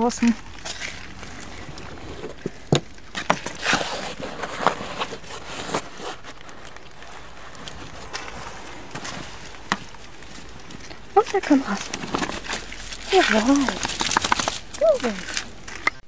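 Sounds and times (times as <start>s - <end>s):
fabric rustling: 0.0s - 15.8s.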